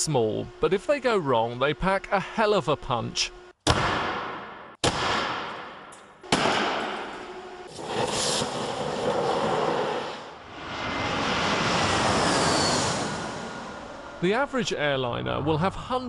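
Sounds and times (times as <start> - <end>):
battery exploding bang: 3.6 - 7.2
jet airliner engine noise: 7.4 - 14.8.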